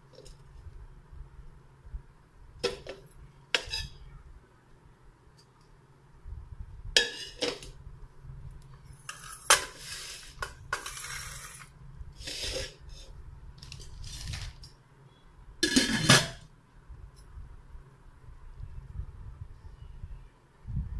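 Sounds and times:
metal pot clinks and scrapes: 3.6s - 4.0s, 7.0s - 7.7s, 15.6s - 16.4s.

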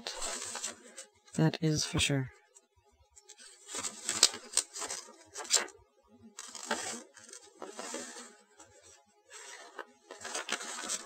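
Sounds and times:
paper pages rustling: 0.0s - 1.1s, 3.2s - 5.7s, 6.4s - 11.0s.

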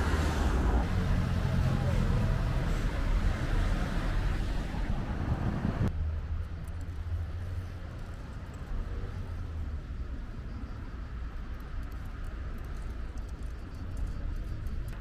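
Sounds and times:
cars driving past: 0.0s - 10.0s.

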